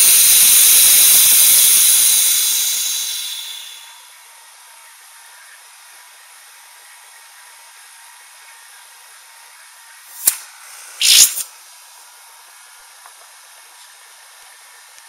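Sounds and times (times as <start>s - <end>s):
air hissing through valve: 0.0s - 4.0s, 10.2s - 11.5s.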